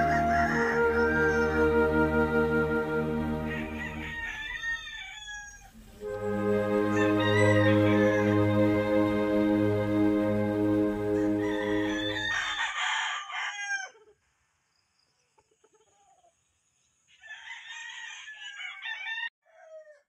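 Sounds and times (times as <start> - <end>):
rooster crowing: 0.0 - 2.0, 3.2 - 5.9, 6.8 - 8.8, 11.1 - 14.0, 17.1 - 20.0
background music: 0.0 - 4.5, 5.8 - 12.5.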